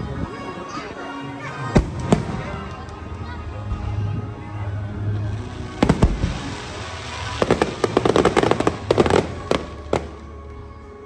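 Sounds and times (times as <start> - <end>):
music: 0.0 - 11.0
crackling firework pops: 1.8 - 3.0, 5.8 - 6.7
firework bangs: 5.6 - 10.3.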